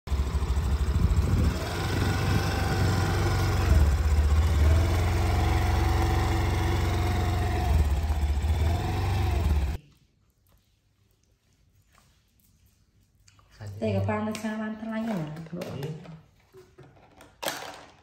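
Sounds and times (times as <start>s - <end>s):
scooter engine running: 0.1s - 9.8s.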